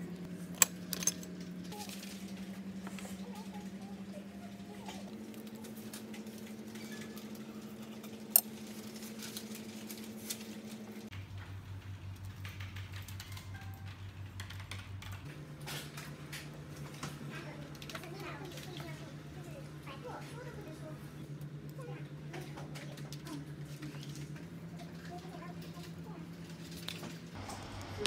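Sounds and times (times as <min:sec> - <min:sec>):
low pulsing drone: 0:27.4 - 0:28.0.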